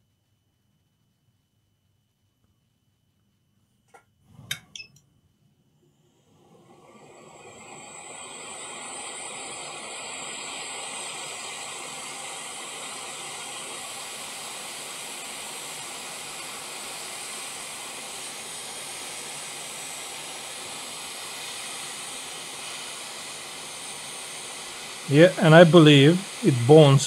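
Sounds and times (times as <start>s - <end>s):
hot air blower hissing: 6.1s - 27.0s.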